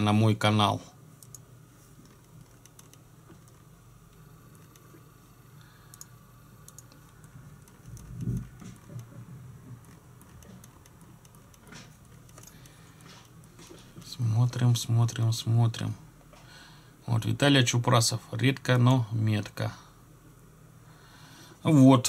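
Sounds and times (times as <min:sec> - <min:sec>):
keyboard clicks: 0:01.2 - 0:01.4
computer mouse clicks: 0:01.2 - 0:03.6, 0:05.9 - 0:13.6.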